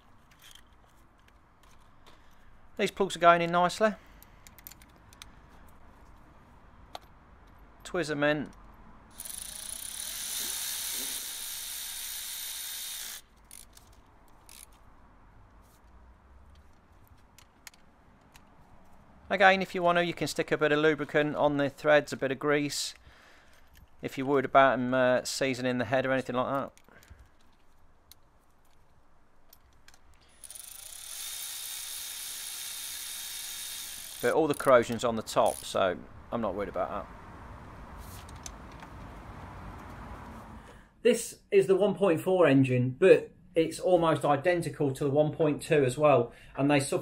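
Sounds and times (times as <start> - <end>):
electric ratchet running: 9.1 - 13.7, 30.3 - 34.4.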